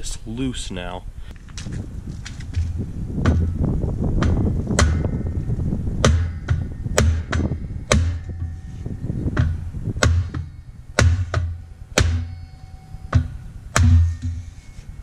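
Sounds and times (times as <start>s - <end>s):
hammer striking metal: 4.2s - 14.8s.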